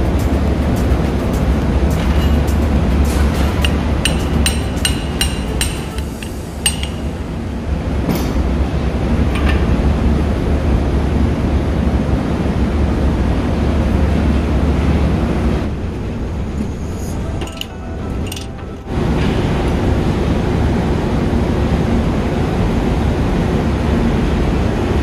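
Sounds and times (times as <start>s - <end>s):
low machinery drone: 0.0s - 25.0s
light metallic clinks: 3.6s - 7.1s, 17.3s - 18.8s.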